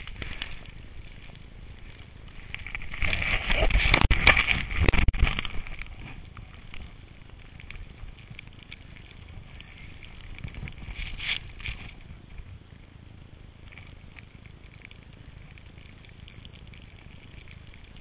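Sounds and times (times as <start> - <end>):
wind on microphone: 9.2 - 12.6.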